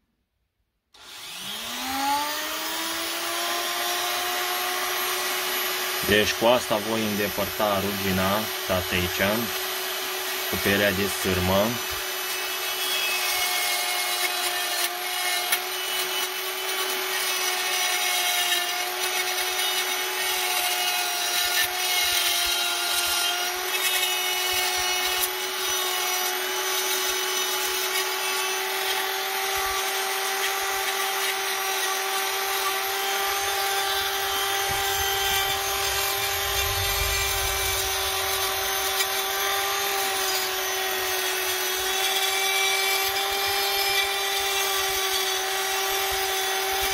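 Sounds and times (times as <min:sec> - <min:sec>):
rotary tool motor whine: 0:01.0 - 0:46.9.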